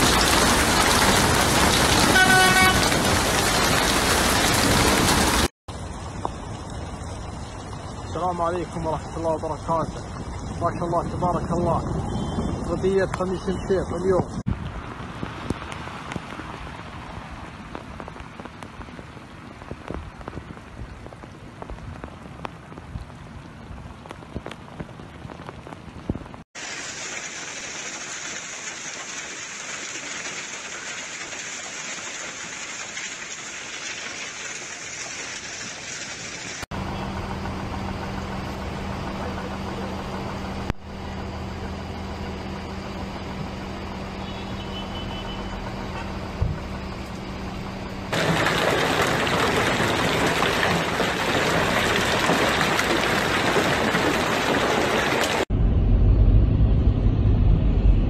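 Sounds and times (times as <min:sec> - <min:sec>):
hailstones striking ground: 0:00.0 - 0:05.5, 0:48.1 - 0:55.5
hiss of falling hail: 0:00.0 - 0:05.5, 0:26.6 - 0:36.7, 0:48.1 - 0:55.5
rain over flooded street: 0:00.0 - 0:12.0, 0:12.6 - 0:36.7, 0:48.1 - 0:55.5
vehicle engine humming: 0:36.7 - 0:48.3.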